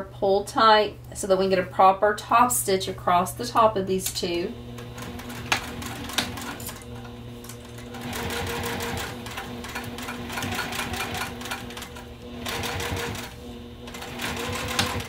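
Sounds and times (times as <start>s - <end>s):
sewing machine stitching: 4.8s - 15.0s.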